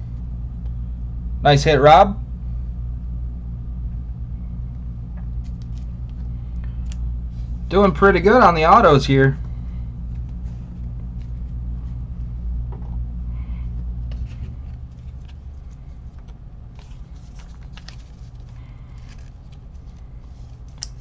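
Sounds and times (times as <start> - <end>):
steady low hum: 0.0 - 21.0
trading cards being handled: 5.3 - 8.5, 9.4 - 12.3, 13.4 - 21.0.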